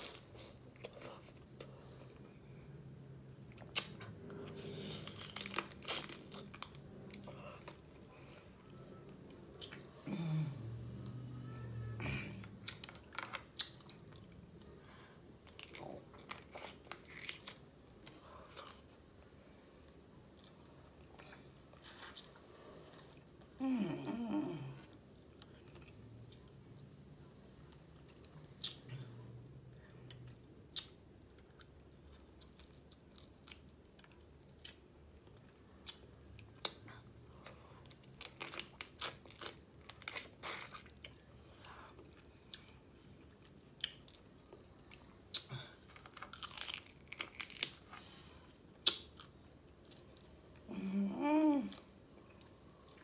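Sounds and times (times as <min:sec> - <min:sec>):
chewing with wet mouth clicks: 0:27.6 - 0:28.9, 0:48.8 - 0:50.3
crab shells crunching: 0:45.9 - 0:47.8.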